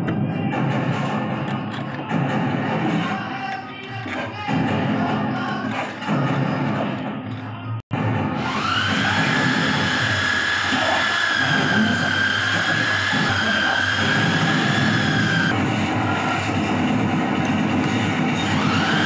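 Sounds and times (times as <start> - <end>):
electric drill whining: 8.4 - 15.6, 18.2 - 19.0.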